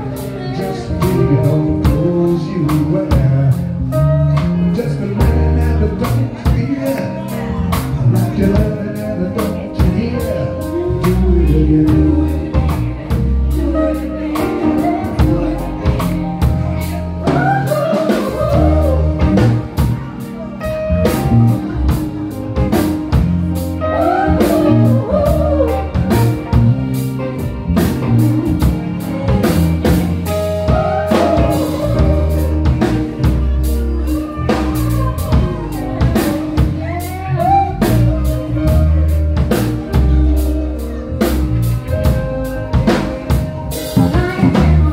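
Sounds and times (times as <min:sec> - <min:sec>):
woman singing: 0:00.0 - 0:03.5, 0:05.2 - 0:19.9, 0:23.8 - 0:26.5, 0:30.3 - 0:39.2, 0:43.8 - 0:44.9
live rock band playing: 0:00.0 - 0:44.9.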